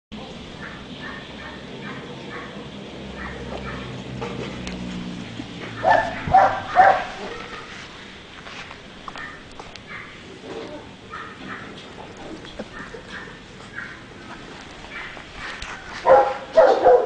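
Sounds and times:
puppy barking high-pitched: 0.6 - 2.6, 3.2 - 3.9, 5.8 - 7.7, 11.1 - 11.8, 12.7 - 14.0, 14.9 - 17.0.

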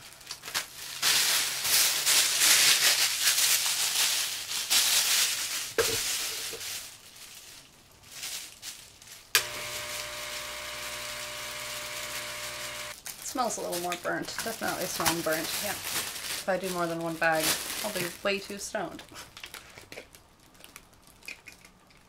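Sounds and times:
plastic bag crinkling: 0.0 - 22.0
air pump humming: 9.4 - 13.0.

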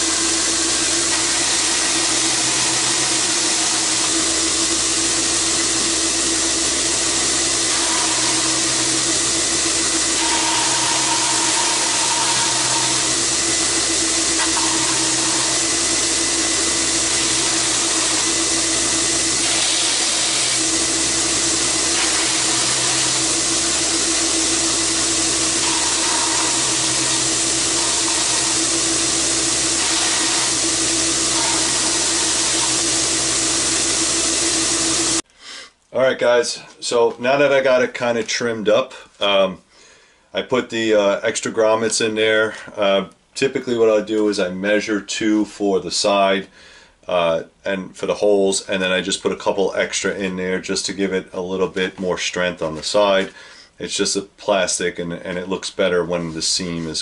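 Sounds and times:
belt grinder whirring: 0.0 - 35.2
shop fans humming: 0.0 - 35.2.

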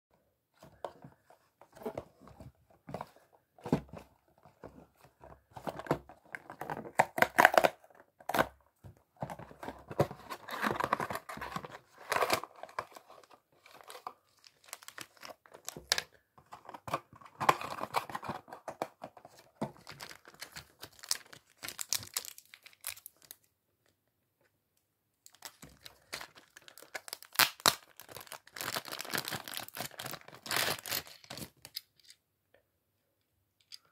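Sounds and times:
plastic bag tearing and crinkling: 26.1 - 31.6.

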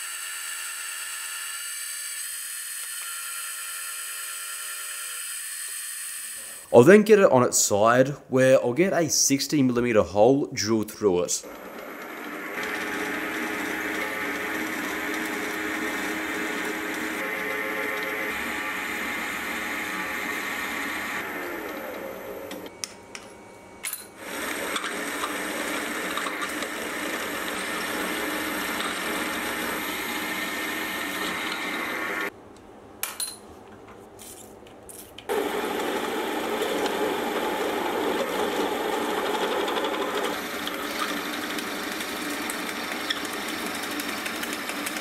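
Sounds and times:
drills boring into metal: 0.0 - 6.7, 11.4 - 22.6, 24.2 - 32.3
milling machine spindle running: 11.4 - 22.8, 24.2 - 32.3, 35.3 - 45.0.

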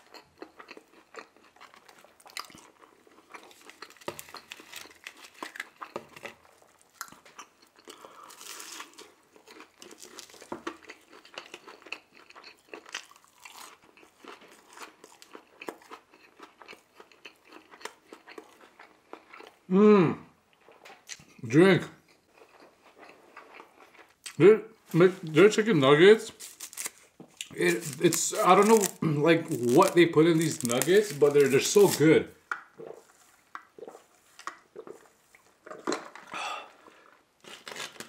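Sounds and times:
chewing with wet clicks: 0.0 - 8.3, 9.0 - 19.6, 20.5 - 21.4, 22.0 - 24.4, 32.5 - 36.1
crisp crunching bite: 0.0 - 19.5, 26.3 - 32.1, 37.4 - 38.0.

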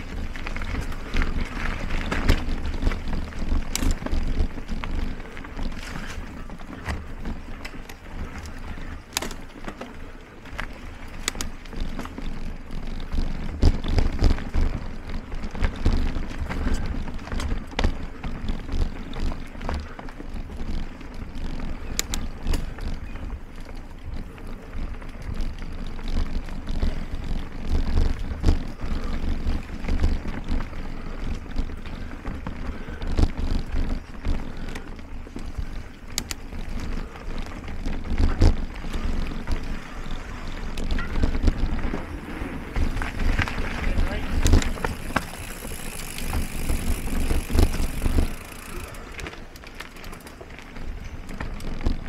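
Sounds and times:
bike clicks and rattles: 0.0 - 52.0
tyres rolling on dirt: 0.0 - 52.0.

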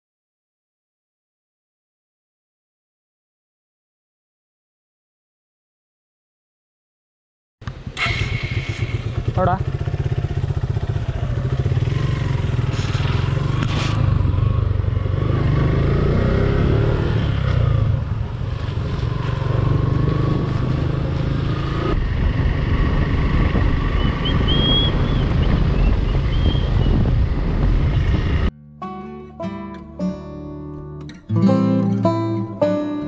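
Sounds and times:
motorcycle engine revving: 7.6 - 28.5.

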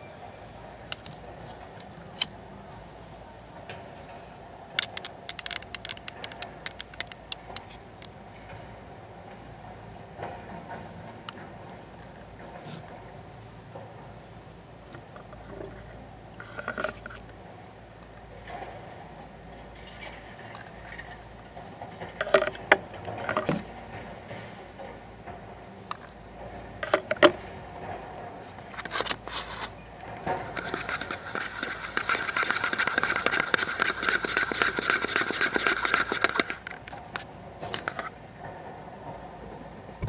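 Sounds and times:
metal spatula scraping in paper cup: 28.8 - 29.7, 30.4 - 36.7.

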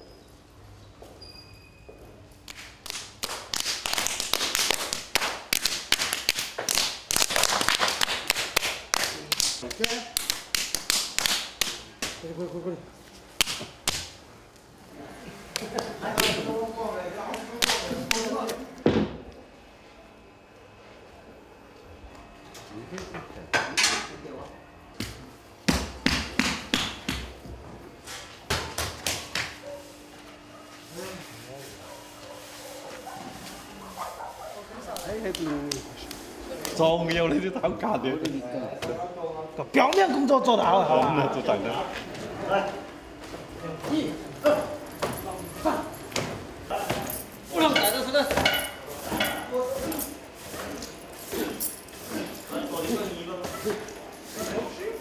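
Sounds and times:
clay being pounded and slapped: 13.4 - 14.1, 25.0 - 27.4, 28.5 - 29.6.

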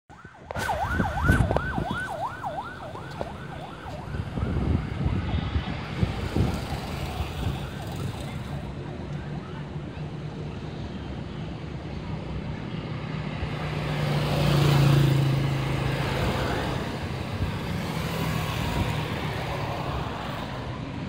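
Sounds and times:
siren yelping: 0.1 - 4.7
road traffic: 0.1 - 21.0
car passing: 0.6 - 8.7, 13.0 - 20.8.

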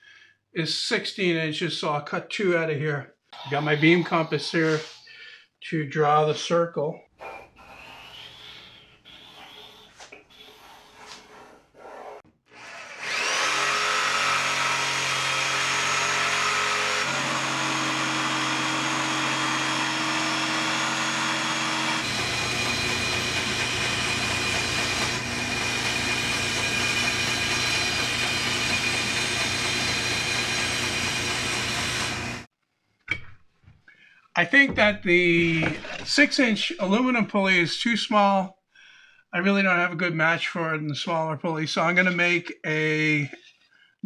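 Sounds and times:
band saw cutting: 7.2 - 32.5
jigsaw cutting wood: 12.0 - 32.5.

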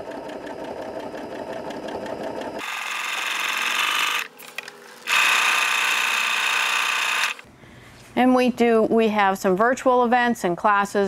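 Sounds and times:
sewing machine stitching: 0.1 - 4.4, 5.0 - 7.4.

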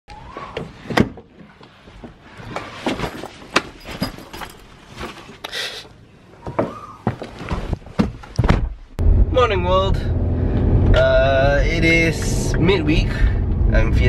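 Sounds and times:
bag rustle: 2.7 - 5.4.

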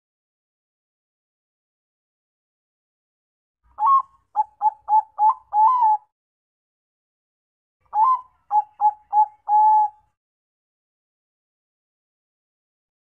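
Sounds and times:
dove cooing: 3.8 - 6.1, 7.9 - 10.0.

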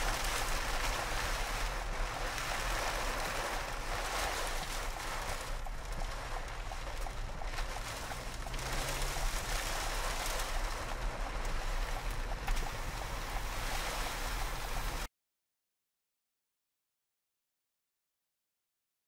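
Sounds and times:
windshield wipers running: 0.0 - 15.0
rain heard inside a vehicle: 0.0 - 15.1
wind noise: 0.0 - 15.1.

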